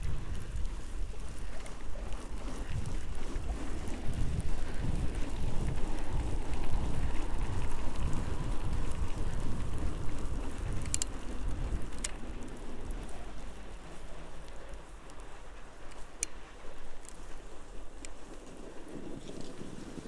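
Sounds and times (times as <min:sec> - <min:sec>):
tyres rolling over snow: 0:00.0 - 0:20.0
wind rumbling on microphone: 0:00.0 - 0:20.0
sharp clicks: 0:10.7 - 0:12.3.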